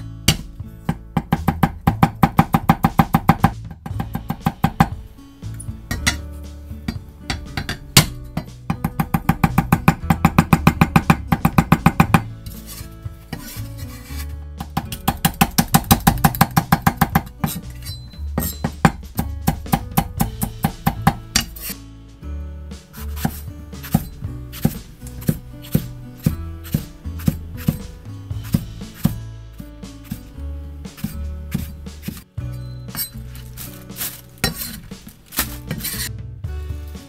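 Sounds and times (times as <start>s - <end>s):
knife chopping on cutting board: 0.3s - 5.0s, 14.6s - 17.7s, 18.4s - 21.8s, 23.0s - 29.2s, 31.0s - 32.3s, 32.9s - 36.1s.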